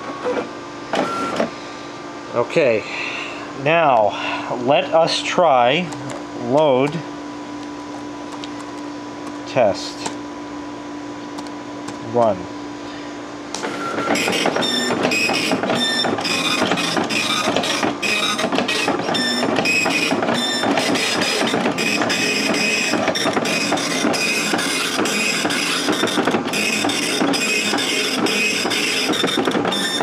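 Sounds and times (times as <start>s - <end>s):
dot matrix printer printing: 13.6s - 30.0s.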